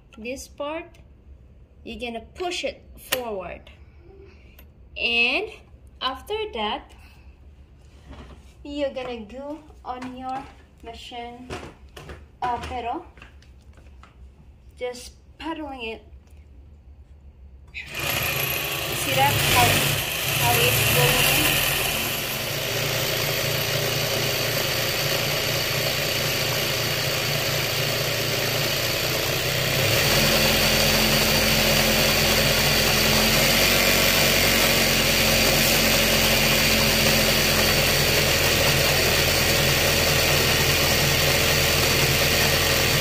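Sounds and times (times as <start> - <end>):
sewing machine running: 17.8 - 43.0.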